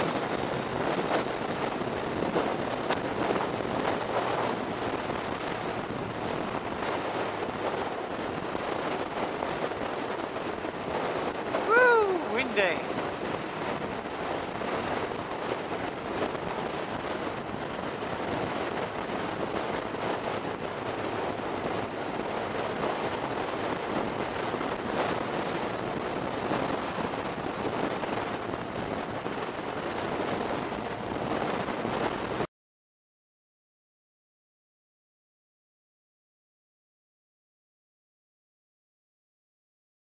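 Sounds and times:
wind buffeting microphone: 0.0 - 32.5.

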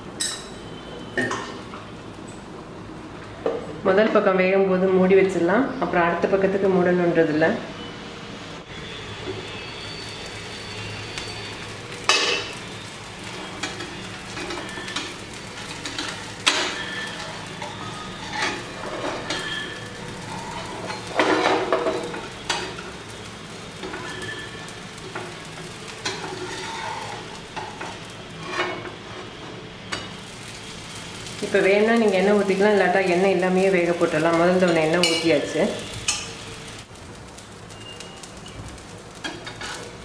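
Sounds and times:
faint sizzle: 0.0 - 40.0
spatula scraping on griddle: 13.2 - 36.5, 39.2 - 40.0.

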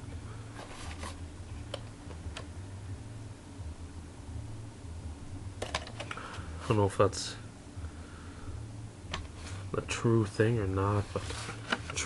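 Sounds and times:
room hum and hiss: 0.0 - 12.0
plastic tape case clicks: 5.6 - 6.2.

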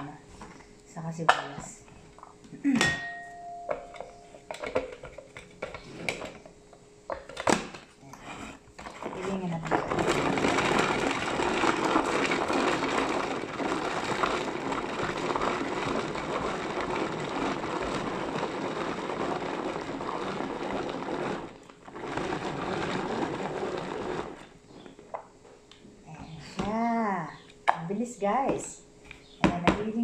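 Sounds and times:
hand-cranked food chopper whirring: 8.8 - 24.8.

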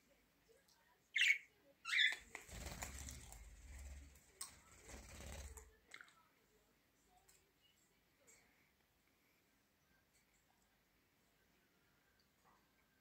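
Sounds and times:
bird wings flapping: 2.2 - 5.7.

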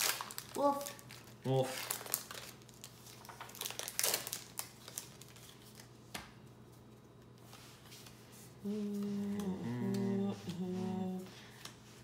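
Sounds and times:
foil wrapper crinkling: 0.0 - 6.0.

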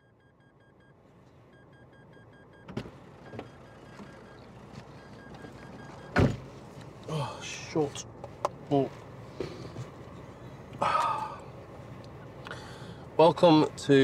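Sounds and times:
faint electronic beep: 0.0 - 6.2.

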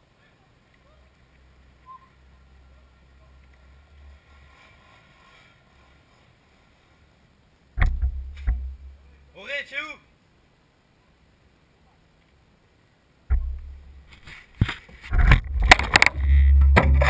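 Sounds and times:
low steady rumble: 5.8 - 9.4, 13.0 - 14.2, 15.0 - 17.0
loud sharp knocks: 7.8 - 8.8.

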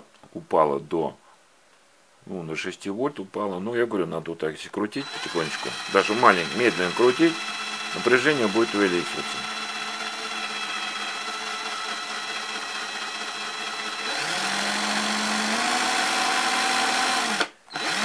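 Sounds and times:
cordless drill whine: 5.0 - 18.0.

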